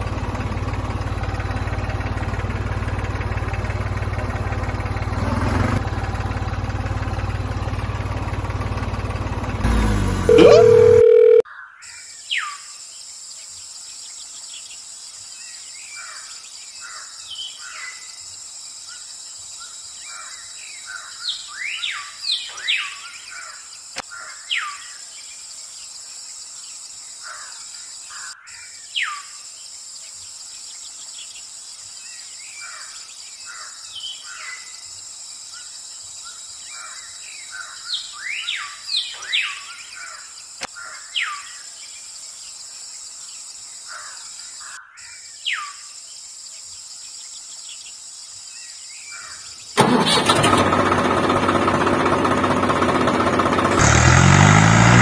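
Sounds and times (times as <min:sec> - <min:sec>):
birds whistling: 0:19.6 - 0:23.6, 0:36.3 - 0:41.6.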